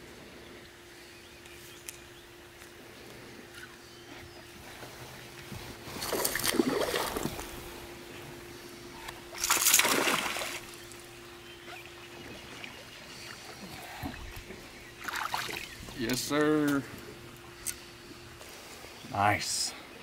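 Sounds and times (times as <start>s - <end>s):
fish splashing at water surface: 6.0s - 7.5s, 9.3s - 10.8s.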